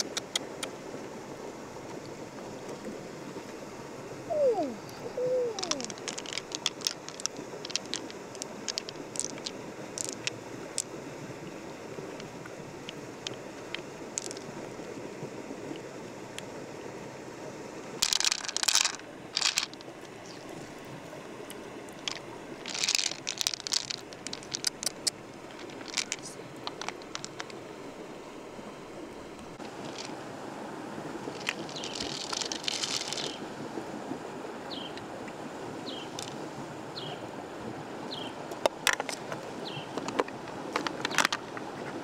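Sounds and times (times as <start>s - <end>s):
steady background hiss: 0.0s - 42.0s
clicks and crunches of hard objects: 5.6s - 10.9s, 13.2s - 14.5s, 18.0s - 19.8s, 22.0s - 27.6s, 31.4s - 33.4s, 40.0s - 41.5s.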